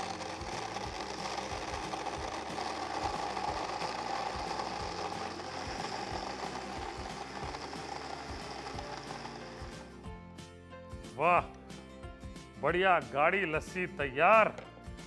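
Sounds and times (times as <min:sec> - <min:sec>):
electric blender running: 0:00.0 - 0:10.0.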